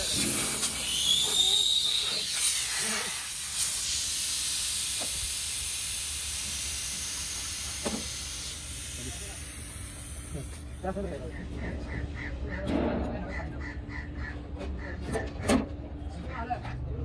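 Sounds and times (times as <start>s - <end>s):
refrigerant gas hissing: 0.0s - 11.0s
brief whistle: 0.7s - 2.6s.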